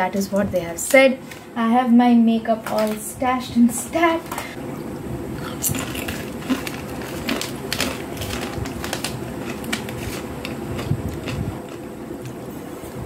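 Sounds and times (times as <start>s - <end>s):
chip crunching while chewed: 5.4s - 12.4s.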